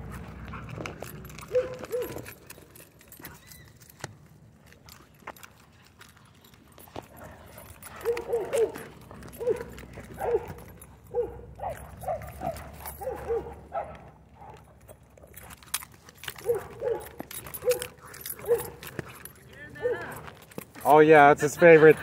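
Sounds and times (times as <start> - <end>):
dog whining and yelping: 1.2 - 4.0, 6.4 - 20.2.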